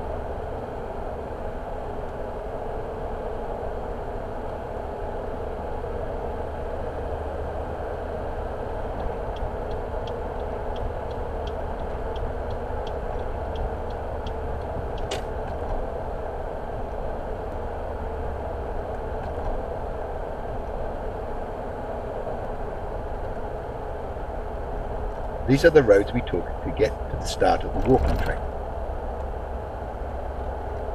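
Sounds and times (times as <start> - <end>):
car road and engine noise: 0.0 - 30.9
turn indicator ticking: 9.0 - 15.7.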